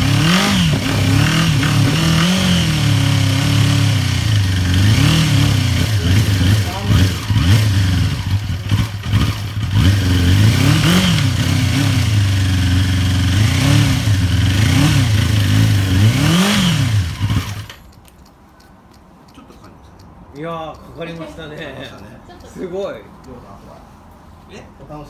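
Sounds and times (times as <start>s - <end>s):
motorcycle engine revving: 0.0s - 17.8s.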